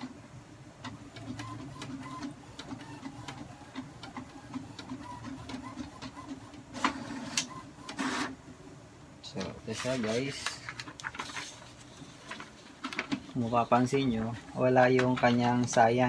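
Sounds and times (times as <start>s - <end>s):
inkjet printer running: 0.8s - 8.4s.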